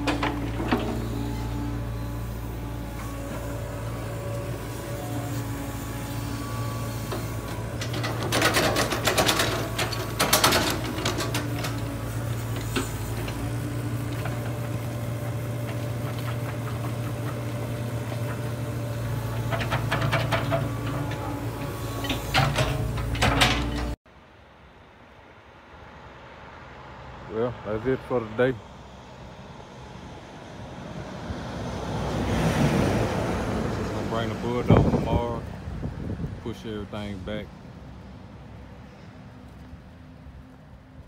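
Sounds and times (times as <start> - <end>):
engine running: 0.0 - 24.0
rattling and clattering: 7.5 - 18.5, 19.2 - 21.4, 22.0 - 24.0.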